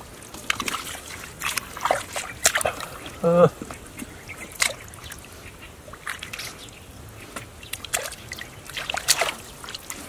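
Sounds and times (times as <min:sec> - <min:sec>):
hands splashing in muddy water: 0:00.3 - 0:03.5, 0:07.3 - 0:10.0.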